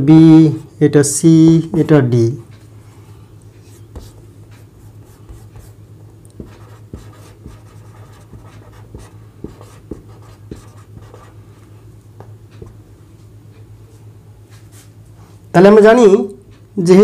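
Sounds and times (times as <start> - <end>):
steady low hum: 0.0 - 17.0
pen scratching on paper: 5.0 - 5.8, 6.4 - 11.3
pen tapping: 5.3 - 11.3.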